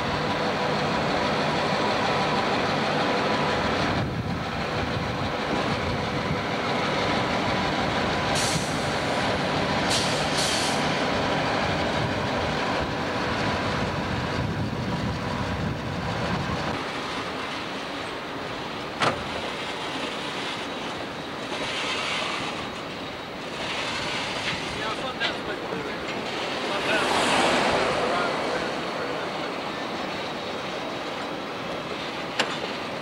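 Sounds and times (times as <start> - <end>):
diesel locomotive engines droning: 0.0 - 33.0
brief hisses: 9.9 - 10.9.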